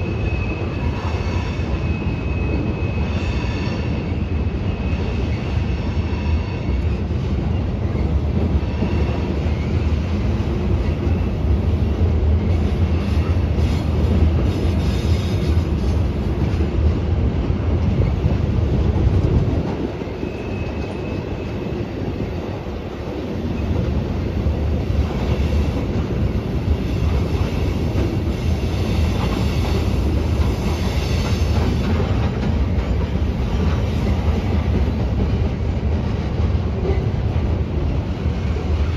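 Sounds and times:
freight train wheels rumbling: 0.0 - 38.9.

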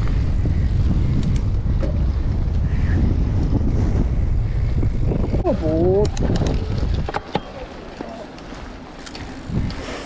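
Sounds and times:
bike clicks and rattles: 0.0 - 10.0
wind buffeting microphone: 0.0 - 10.0.

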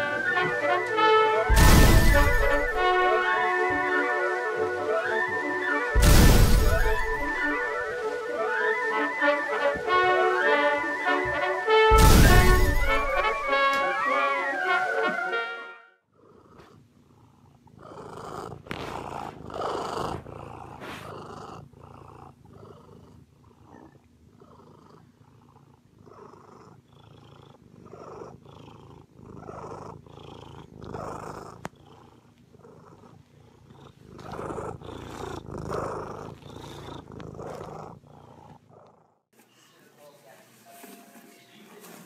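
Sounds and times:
cat purring: 6.2 - 7.8, 16.1 - 39.2.

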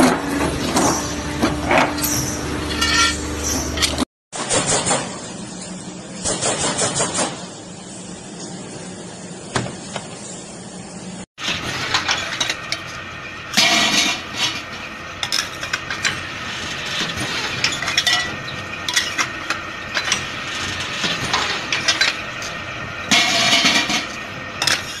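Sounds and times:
metal clanking and scraping: 0.0 - 4.1, 11.4 - 25.0
harsh metal clatter: 11.4 - 25.0.

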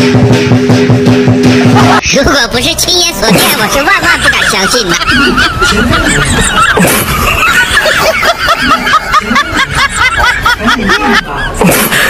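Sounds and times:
high-pitched snickering laughter: 3.3 - 12.0.

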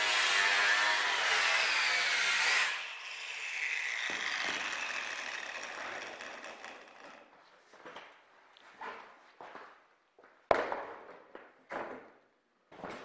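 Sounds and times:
angle grinder cutting steel: 0.0 - 7.3.

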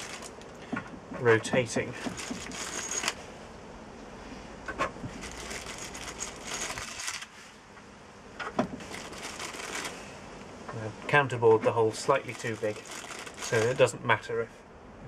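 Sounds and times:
plastic bag rustling: 0.0 - 0.4, 2.0 - 3.2, 5.0 - 7.4, 8.8 - 10.1, 12.0 - 13.9.

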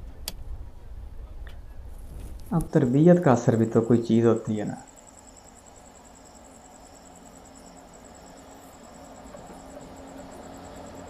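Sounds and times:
low steady hum: 0.0 - 11.0
insect chirping trill: 2.5 - 11.0.

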